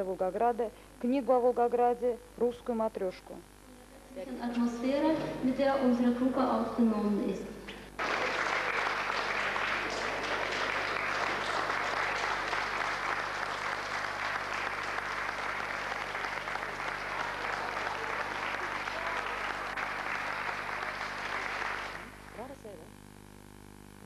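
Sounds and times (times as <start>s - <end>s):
audience applauding: 8.0s - 22.6s.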